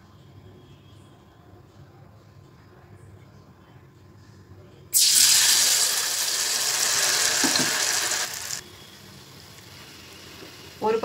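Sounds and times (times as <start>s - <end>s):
hot oil sizzling: 5.0s - 11.0s.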